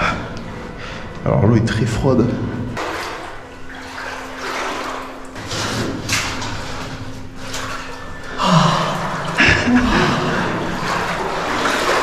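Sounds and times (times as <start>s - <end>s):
footsteps wading through water: 2.6s - 12.0s.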